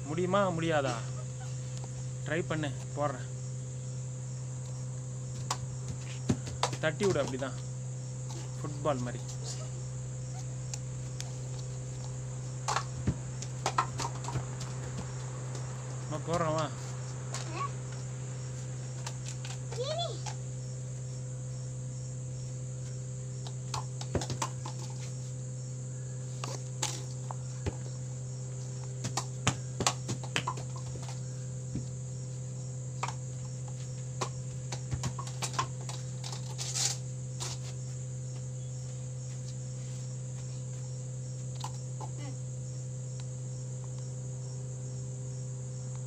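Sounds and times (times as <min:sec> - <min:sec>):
crickets chirping: 0:00.0 - 0:46.0
low steady hum: 0:00.0 - 0:46.0.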